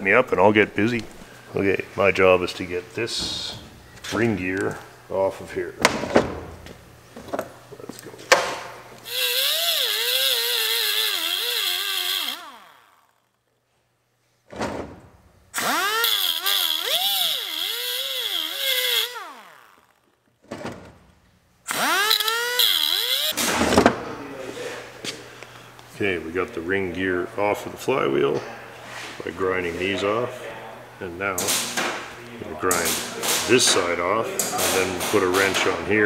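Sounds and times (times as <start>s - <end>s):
pneumatic grinder grinding metal: 9.0s - 13.4s, 15.5s - 20.2s, 21.7s - 23.6s.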